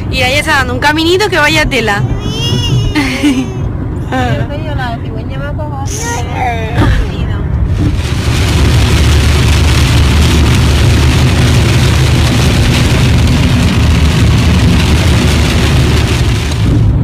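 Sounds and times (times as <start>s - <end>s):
car driving rumble: 0.0s - 17.0s
rain and hail on car roof: 6.8s - 17.0s.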